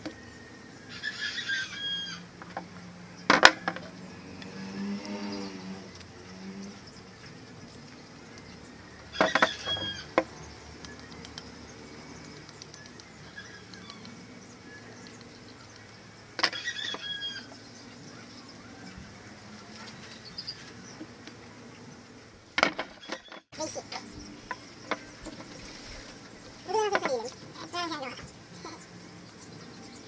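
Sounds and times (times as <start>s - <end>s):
short squeaks: 9.2s - 10.1s, 22.8s - 23.5s.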